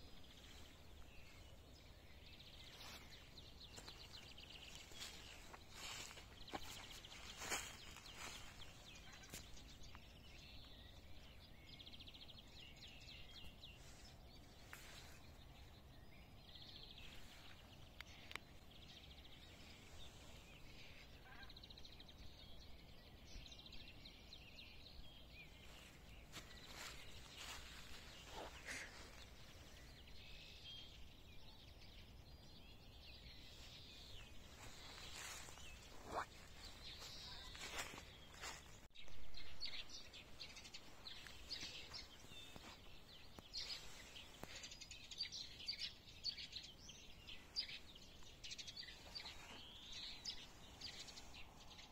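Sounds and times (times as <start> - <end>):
songbirds chirping and trilling: 0.0 - 51.9.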